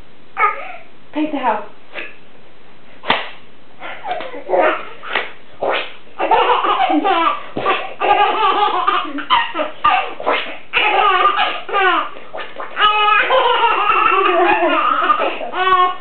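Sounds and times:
baby laughing: 3.8 - 16.0.

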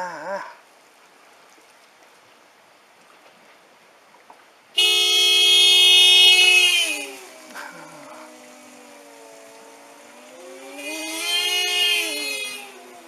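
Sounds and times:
car horn sounding: 4.8 - 7.7, 10.6 - 13.0.

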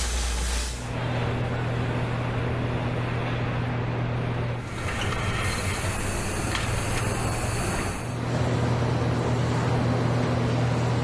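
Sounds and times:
air hissing: 0.0 - 0.9, 4.7 - 8.2
machinery hum: 0.0 - 11.0.

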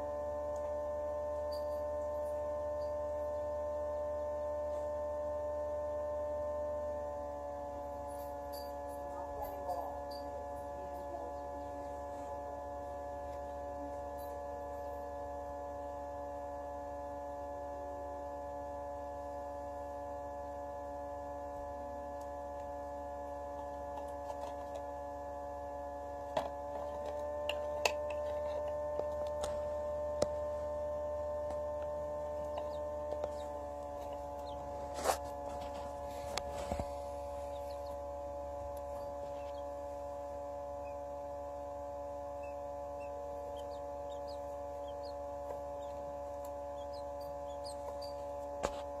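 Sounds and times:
incubator fan motor hum: 0.0 - 49.0
faint high chick chirps: 32.5 - 33.5, 37.3 - 38.0, 42.4 - 46.0, 46.8 - 48.4.

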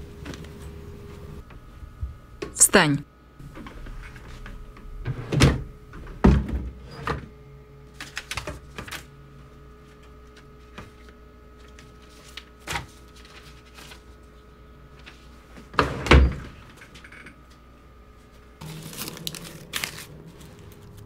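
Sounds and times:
papers being rifled through: 9.8 - 14.4, 18.6 - 21.0.

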